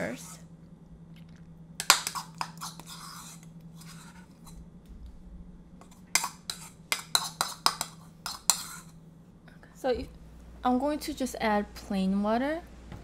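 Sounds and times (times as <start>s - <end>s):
spoon scraping sauce from bowl: 1.8s - 4.6s, 5.8s - 9.0s.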